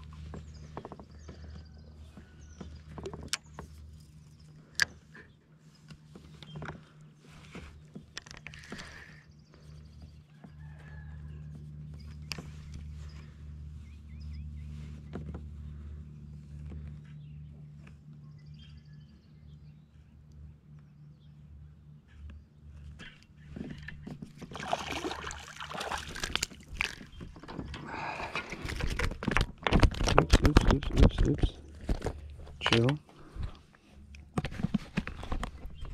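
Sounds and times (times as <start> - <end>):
steady low hum: 0.0 - 35.9
water splashing: 24.4 - 27.1
handling clatter with clicks: 26.1 - 35.9.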